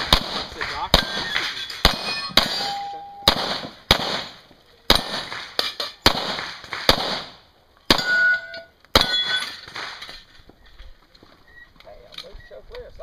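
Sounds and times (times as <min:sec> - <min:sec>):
pistol shots: 0:00.0 - 0:10.2
steel plate ringing: 0:01.1 - 0:03.3, 0:07.9 - 0:09.7.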